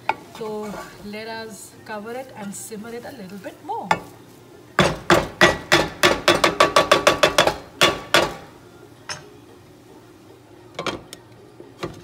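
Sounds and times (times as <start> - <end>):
wooden spatula knocking on pan: 4.8 - 8.4.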